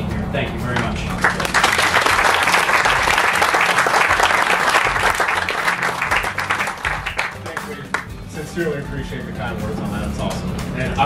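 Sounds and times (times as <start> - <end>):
audience applauding: 1.2 - 8.1.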